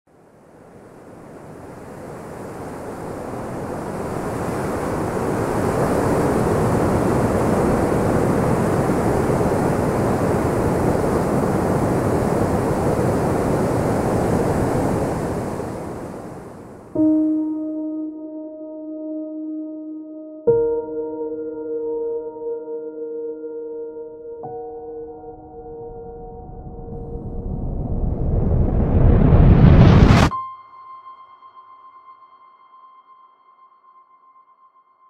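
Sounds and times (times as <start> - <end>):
river rushing over rapids: 0.6 - 16.9.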